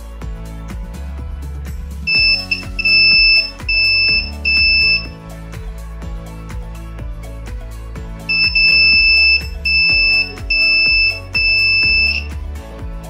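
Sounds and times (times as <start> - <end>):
background music: 0.0 - 13.0
multimeter continuity beeps: 2.1 - 5.2, 8.3 - 12.3.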